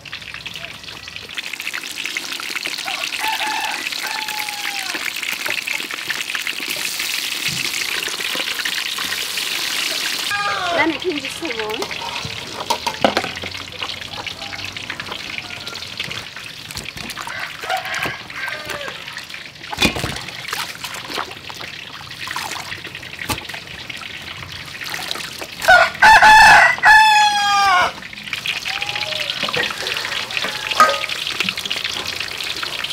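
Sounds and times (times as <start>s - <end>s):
water splashing and trickling: 0.0s - 32.9s
rooster crowing: 2.8s - 5.2s, 10.3s - 10.8s, 14.0s - 16.2s, 17.2s - 19.3s, 25.7s - 31.3s.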